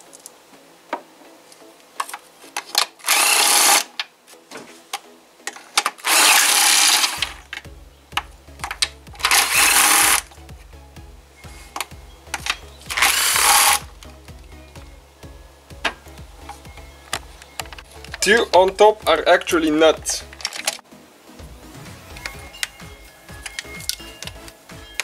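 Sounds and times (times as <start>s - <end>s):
cordless drill spinning bolts: 2.8s - 4.0s, 5.8s - 7.4s, 9.2s - 10.2s, 12.4s - 13.9s.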